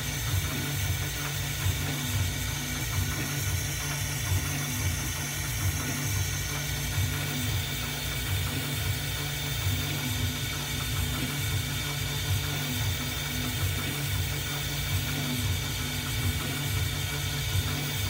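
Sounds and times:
low uneven machine hum: 0:00.0 - 0:18.0
milling machine high whine: 0:00.0 - 0:18.0.

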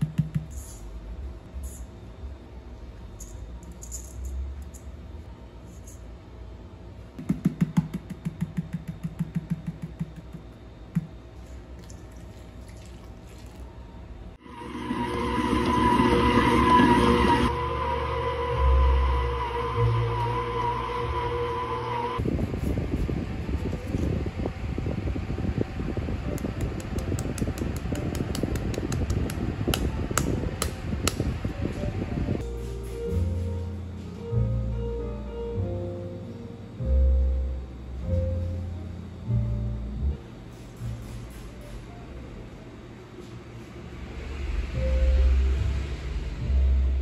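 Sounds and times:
fan-like mechanical hum: 0:00.0 - 0:47.0
liquid pouring into bowl: 0:11.7 - 0:13.7.

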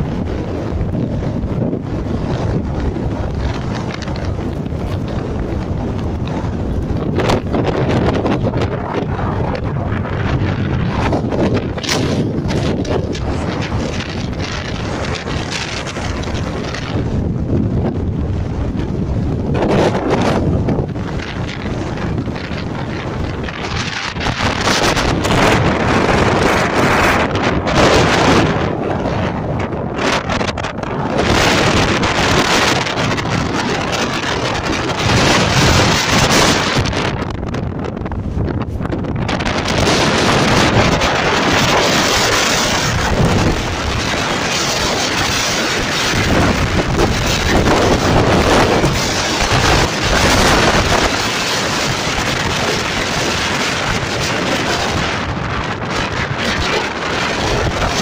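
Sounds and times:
wind buffeting microphone: 0:00.0 - 0:58.0.

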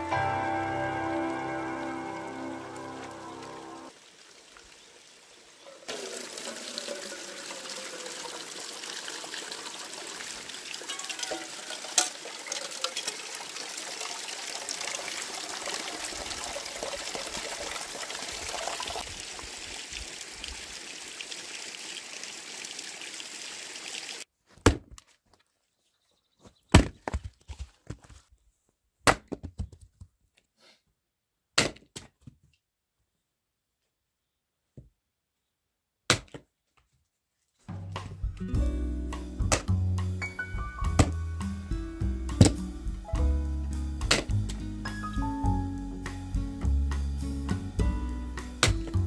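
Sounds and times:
water pouring into metal tin: 0:05.8 - 0:24.2
axe striking firewood: 0:24.6 - 0:25.0, 0:26.7 - 0:27.2, 0:29.0 - 0:29.5, 0:31.6 - 0:32.1, 0:36.1 - 0:36.4, 0:39.5 - 0:39.8, 0:42.4 - 0:42.6, 0:44.0 - 0:44.4.

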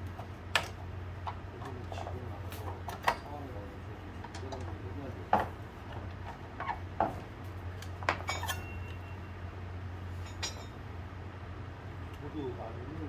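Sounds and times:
steady low hum: 0:00.0 - 0:13.0
metal tools clinking: 0:01.9 - 0:03.6, 0:08.0 - 0:09.3, 0:10.2 - 0:10.8.

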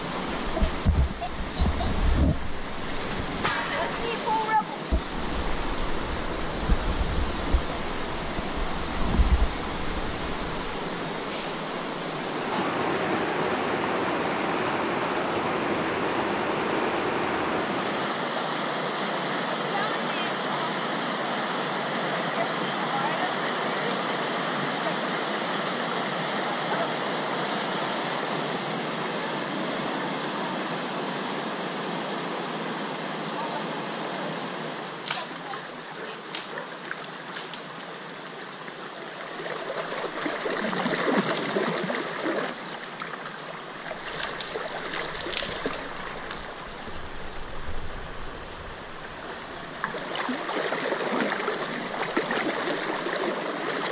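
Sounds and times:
river current rushing: 0:00.0 - 0:53.9
dull low thumps: 0:00.5 - 0:03.4, 0:04.9 - 0:10.7.

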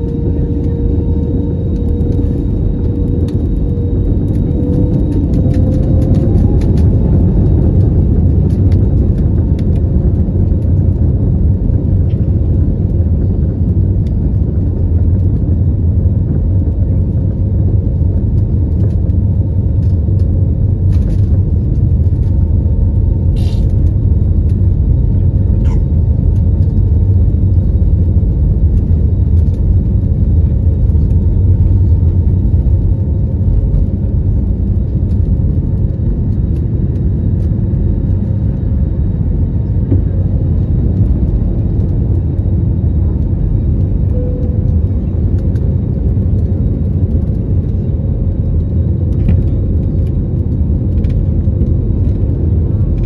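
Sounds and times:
jet engines at takeoff thrust: 0:00.0 - 0:53.0
wheels rumbling on runway: 0:00.0 - 0:53.0.

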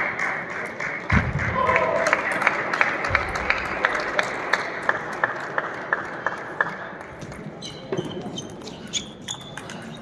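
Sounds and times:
shoes squeaking on floor: 0:07.6 - 0:10.0.

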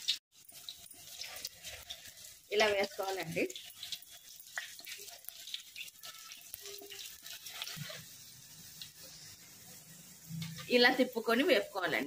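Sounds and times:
banana slices sizzling in oil: 0:00.0 - 0:12.0
metal spatula stirring: 0:00.4 - 0:11.2.

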